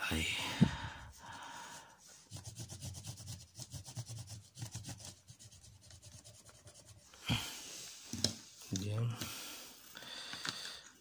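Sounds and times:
pencil scratching on paper: 2.1 - 7.1.

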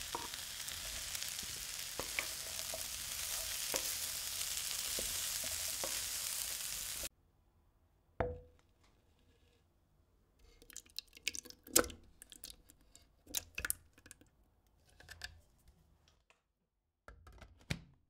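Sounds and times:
food sizzling in oil: 0.0 - 7.1
utensil knocking on pan: 0.1 - 0.4, 1.9 - 6.2.

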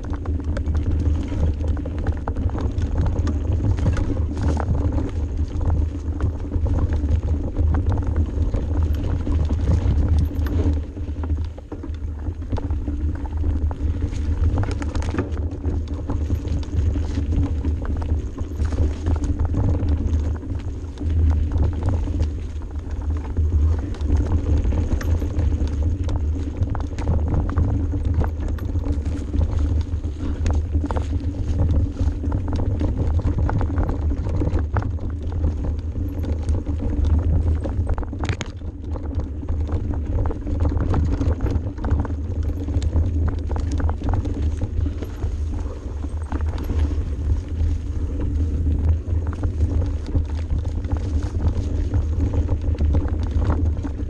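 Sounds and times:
bike rattling and knocking: 0.0 - 54.0
bike tyres rolling on trail: 0.0 - 54.0
wind rumble on microphone: 0.0 - 54.0.

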